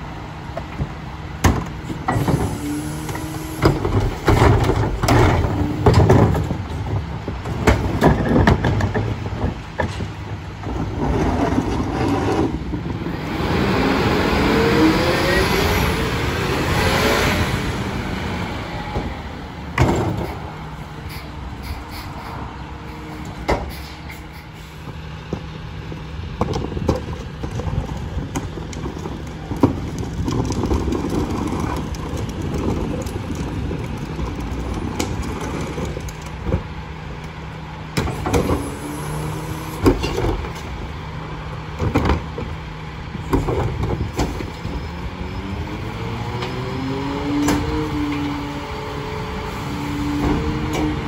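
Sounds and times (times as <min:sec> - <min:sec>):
garbage truck engine hum: 0:00.0 - 0:51.0
knocks and bangs of trash: 0:03.6 - 0:12.9, 0:19.7 - 0:20.3
engine revving: 0:13.0 - 0:19.5, 0:44.6 - 0:51.0.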